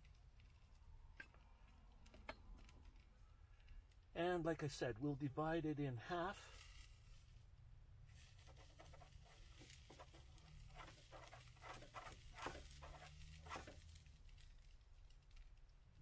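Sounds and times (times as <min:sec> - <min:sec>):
spatula scraping frying pan: 0:08.2 - 0:14.0.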